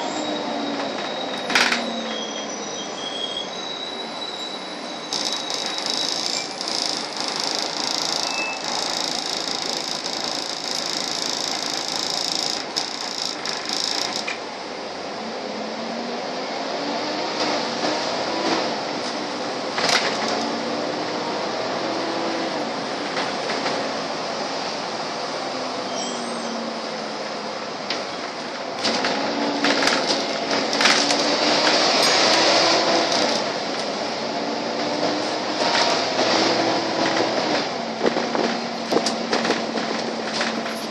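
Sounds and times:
body and fittings rattling: 5.1 - 14.4
bus engine drone: 14.2 - 40.9
bus cabin hiss and rattle: 37.0 - 40.9.

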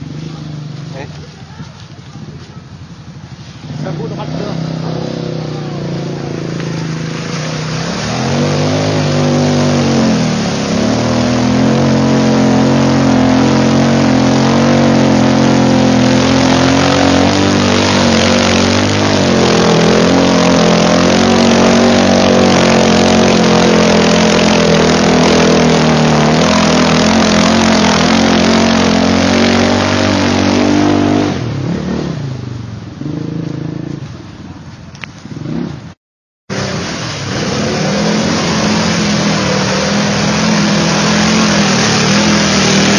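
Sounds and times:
water and mud splashing: 0.0 - 33.6, 36.5 - 42.9
quad bike engine revving: 3.6 - 34.0, 35.3 - 35.9, 36.5 - 42.9.

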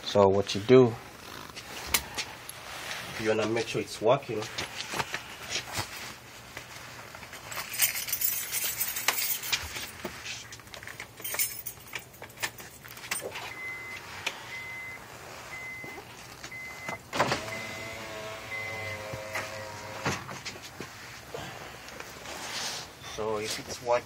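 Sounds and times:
window motor humming: 13.4 - 20.4
small electric motors whirring: 17.3 - 20.2.

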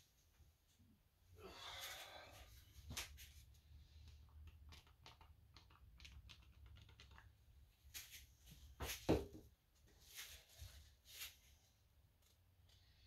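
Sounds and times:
small objects clicking and tapping: 4.0 - 7.4.

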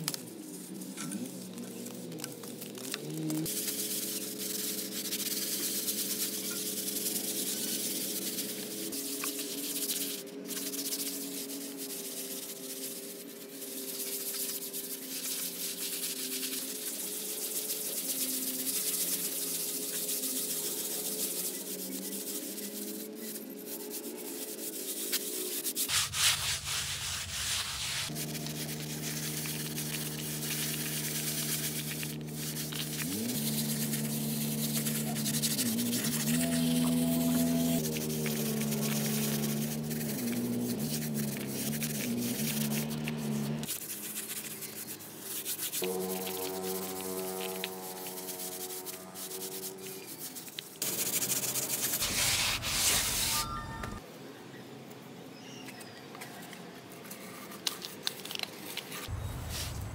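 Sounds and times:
sanding rough rubbing: 3.4 - 54.0
steady low tones: 59.1 - 59.9.

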